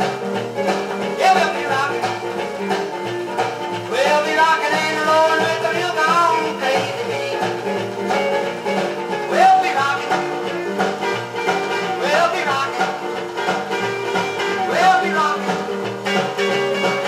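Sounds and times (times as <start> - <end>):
rockabilly song from a record: 0.0 - 17.0.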